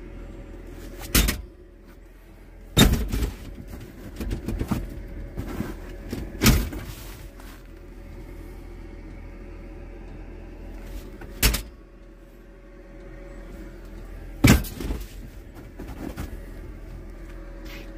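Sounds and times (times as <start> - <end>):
steady low hum: 0.0 - 17.9
seat clunks: 2.8 - 7.7, 14.4 - 17.0.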